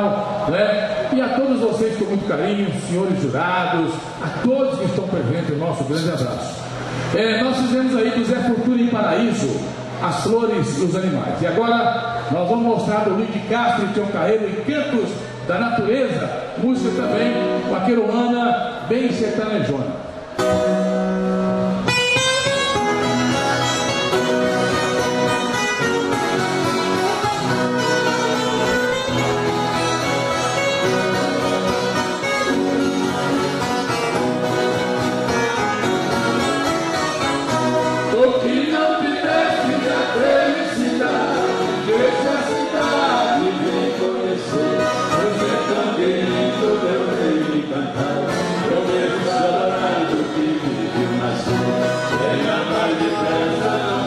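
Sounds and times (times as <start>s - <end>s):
violas and acoustic guitars playing: 0.0s - 54.0s
voices singing together: 38.0s - 54.0s.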